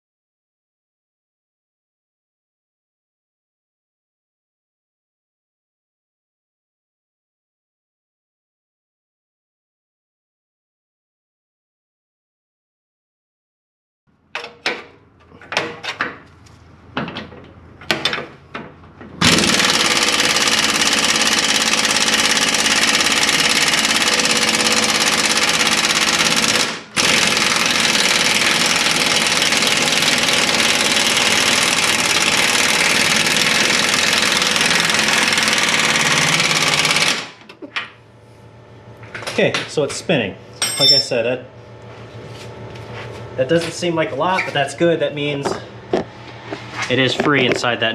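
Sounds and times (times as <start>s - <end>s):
impact wrench hammering: 19.2s - 37.5s
metal tool clinks: 40.6s - 41.2s.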